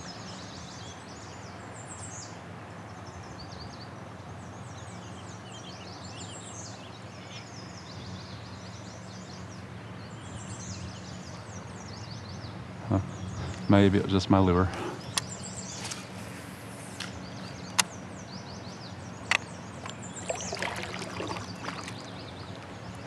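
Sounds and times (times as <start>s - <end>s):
songbirds chirping trills: 0.0s - 23.0s
steady low hum: 4.0s - 23.0s.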